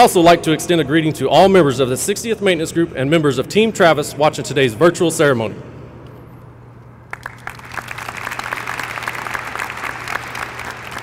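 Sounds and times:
steady low hum: 0:00.0 - 0:11.0
audience applause: 0:07.1 - 0:11.0.

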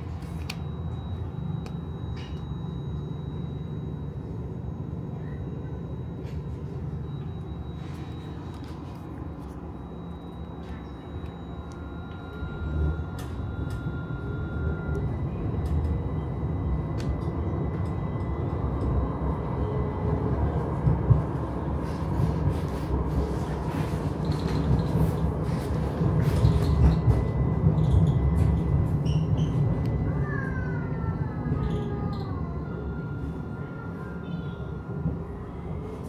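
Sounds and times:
wavering wailing tone: 0:00.0 - 0:20.6, 0:25.5 - 0:36.0
faint high tone: 0:00.4 - 0:16.6, 0:29.8 - 0:36.0
tram wheels rumbling: 0:04.2 - 0:36.0.

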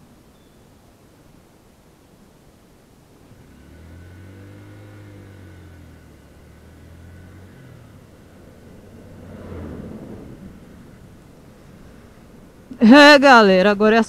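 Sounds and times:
vehicle engines in traffic: 0:00.0 - 0:14.0
truck passing close: 0:03.2 - 0:14.0.

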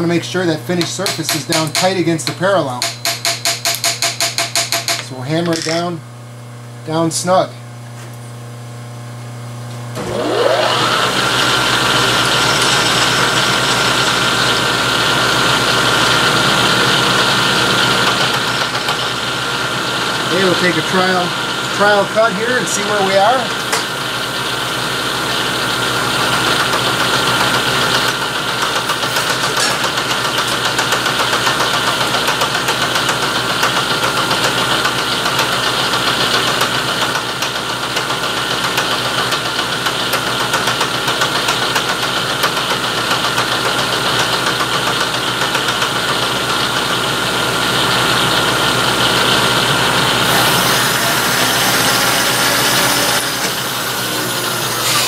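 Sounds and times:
milling machine hum: 0:09.9 - 0:55.0
cutter chattering in steel: 0:50.3 - 0:55.0.

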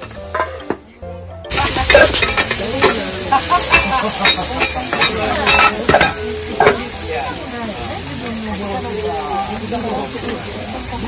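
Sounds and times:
cabbage sizzling on a griddle: 0:00.0 - 0:11.0
metal spatulas scraping and clacking: 0:01.8 - 0:06.9.

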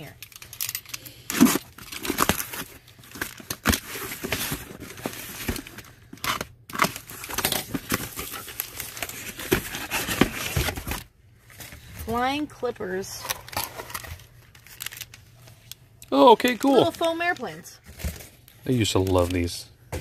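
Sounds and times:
cardboard scraping and rustling: 0:06.8 - 0:12.3.

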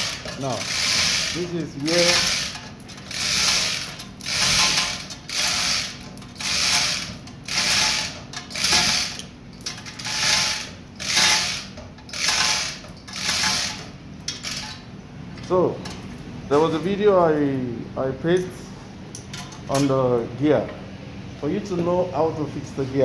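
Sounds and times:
chain hoist ratcheting: 0:00.0 - 0:14.8.

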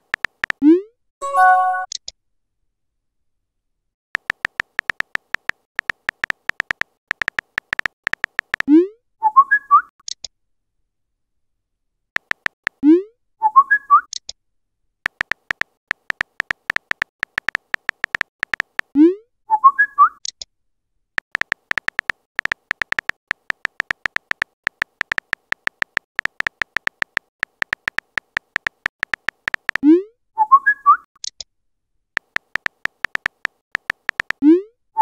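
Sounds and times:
phone keyboard typing clicks: 0:00.0 - 0:00.6, 0:04.2 - 0:08.7, 0:12.2 - 0:12.8, 0:15.1 - 0:19.0, 0:21.2 - 0:29.8, 0:32.2 - 0:34.4
message chime: 0:01.2 - 0:01.9.

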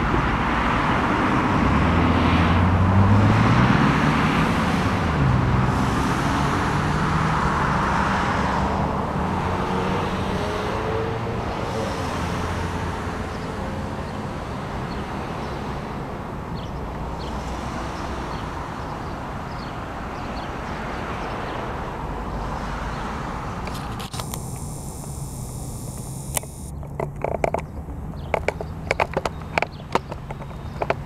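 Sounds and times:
cars passing: 0:00.0 - 0:31.0.

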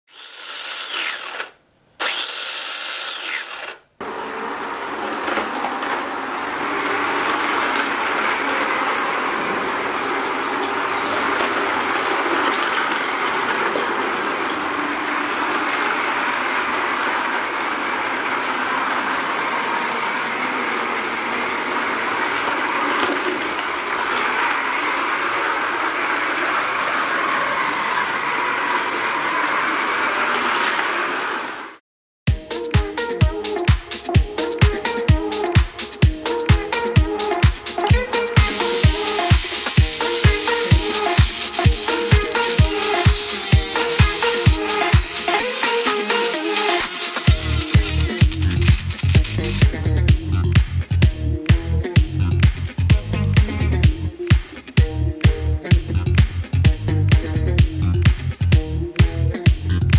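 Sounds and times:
toy train whirring rattle: 0:00.0 - 0:03.8, 0:06.5 - 0:27.6, 0:37.4 - 0:49.7
high swooshes: 0:35.6 - 0:49.7.

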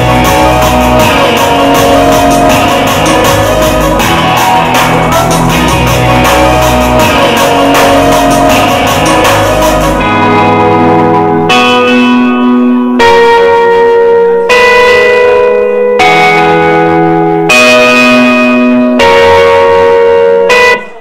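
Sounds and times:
held ringing chords: 0:00.0 - 0:21.0.

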